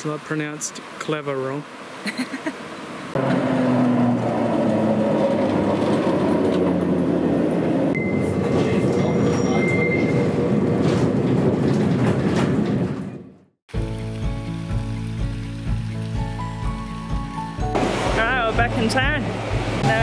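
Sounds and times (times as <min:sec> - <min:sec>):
tram rumbling on rails: 0:03.2 - 0:13.4.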